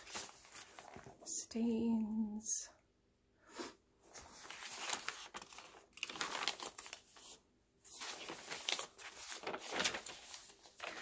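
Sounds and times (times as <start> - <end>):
paper pages rustling and crinkling: 0.0 - 1.3, 4.0 - 11.0.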